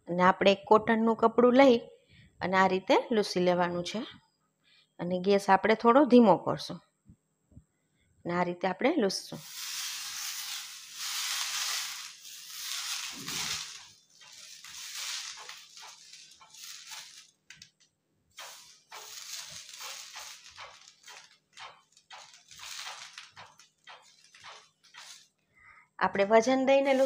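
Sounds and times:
cloth rubbing on hot iron pan: 0:09.4 - 0:17.7, 0:18.3 - 0:25.4.

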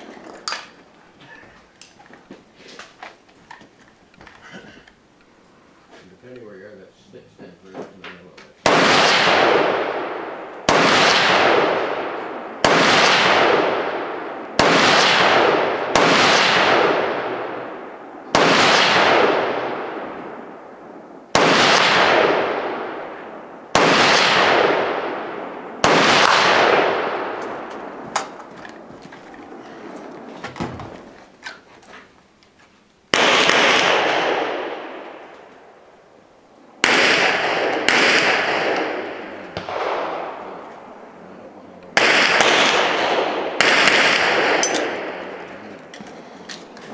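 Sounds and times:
gunshots with echo: 0:08.6 - 0:28.5, 0:33.1 - 0:35.3, 0:36.8 - 0:41.0, 0:41.9 - 0:45.8.

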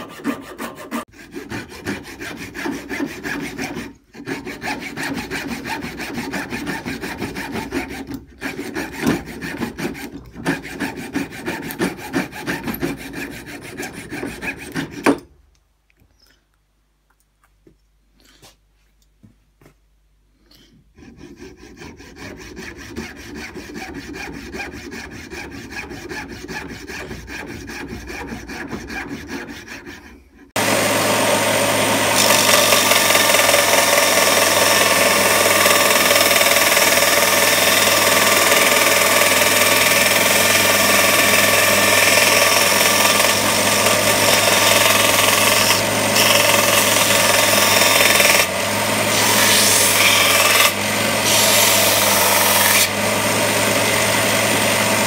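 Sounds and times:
coping saw cutting wood: 0:00.0 - 0:15.2, 0:20.9 - 0:55.0
belt sander running: 0:30.6 - 0:55.0.

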